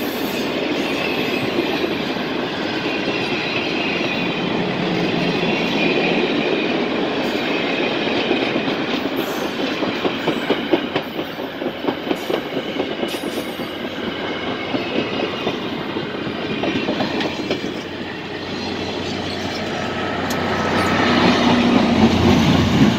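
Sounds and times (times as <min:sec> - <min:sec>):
diesel locomotive engine rumble: 0:00.0 - 0:22.9
train wheels clattering over rail joints: 0:07.3 - 0:18.0.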